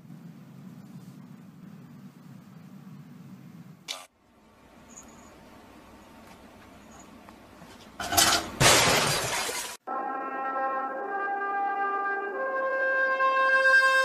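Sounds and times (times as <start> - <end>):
brass music long notes: 9.9 - 14.0.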